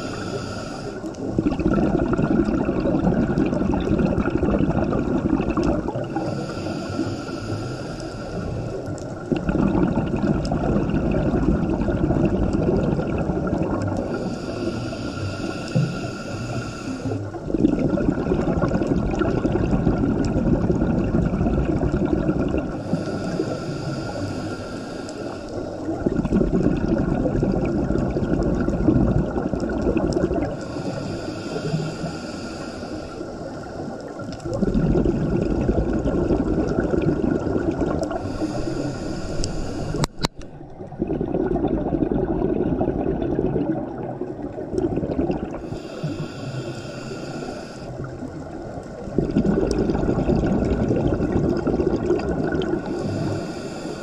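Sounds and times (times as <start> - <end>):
regulator inhale hiss: 0.0 - 1.4, 6.1 - 9.0, 14.0 - 17.4, 22.7 - 26.0, 30.6 - 34.4, 38.0 - 40.5, 45.5 - 49.1, 52.8 - 54.0
exhaled bubbles underwater: 0.0 - 54.0.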